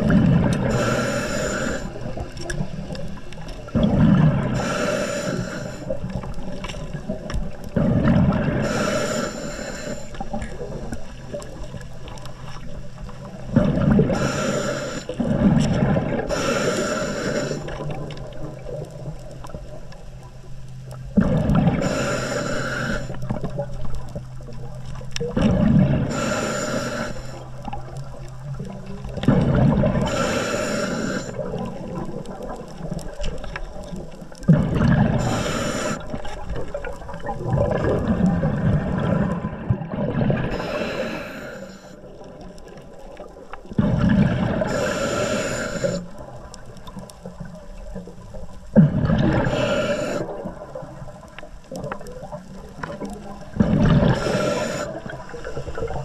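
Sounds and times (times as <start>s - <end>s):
rumbling exhaled bubbles: 0.0s - 9.2s, 10.2s - 20.4s, 21.0s - 56.0s
hissing breath through regulator: 0.6s - 3.0s, 4.4s - 6.3s, 8.3s - 10.4s, 14.0s - 15.4s, 16.2s - 18.2s, 21.7s - 23.4s, 25.9s - 27.8s, 29.2s - 31.8s, 35.0s - 36.4s, 40.4s - 42.1s, 44.5s - 46.3s, 49.3s - 50.8s, 53.6s - 56.0s.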